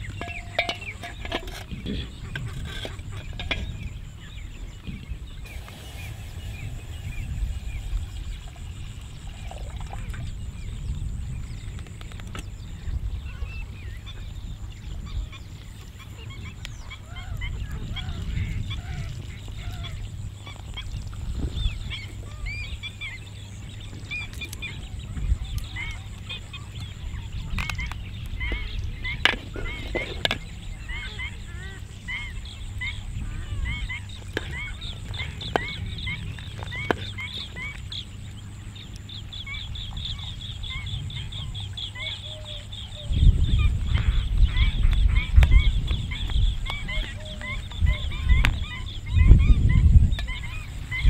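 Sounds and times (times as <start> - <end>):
birds chirping: 0.0 - 51.0
low rumble: 5.0 - 11.7.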